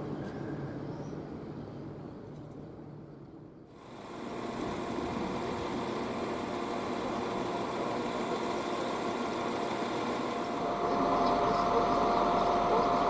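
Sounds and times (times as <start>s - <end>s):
diesel engine idling: 3.8s - 13.0s.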